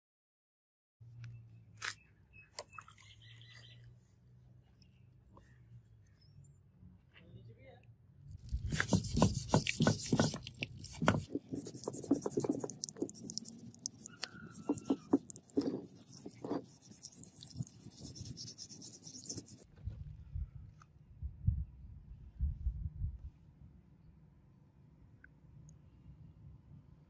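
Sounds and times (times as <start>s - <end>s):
stone scraping steel: 8.6s - 19.7s
low rumble: 19.8s - 23.5s.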